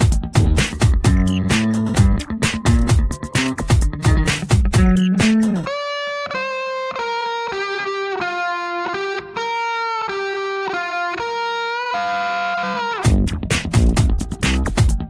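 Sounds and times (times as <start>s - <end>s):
drums and bass beat: 0.0s - 5.7s, 13.0s - 15.0s
electric guitar melody: 0.0s - 15.0s.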